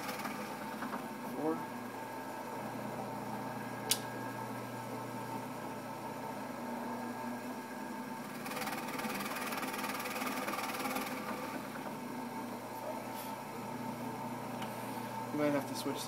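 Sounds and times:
drill press motor running: 0.0s - 12.8s
sharp click: 3.9s - 4.1s.

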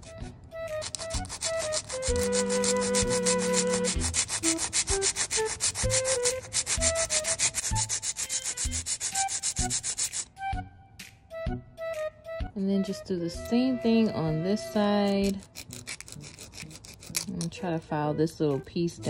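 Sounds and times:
soft background music: 0.0s - 19.0s
nail file rasping on plastic: 0.7s - 10.3s, 14.8s - 17.6s.

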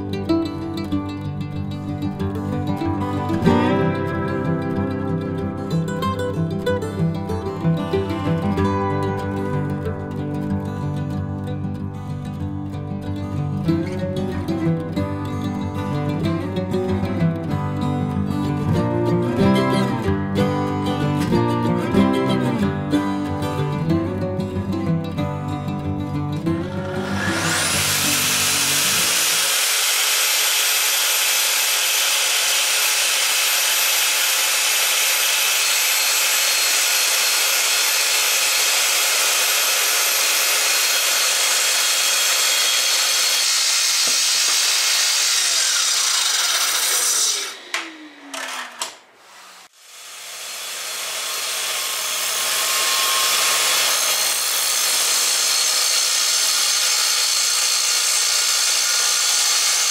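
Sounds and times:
track saw cutting wood: 3.3s - 7.3s, 26.5s - 59.9s.

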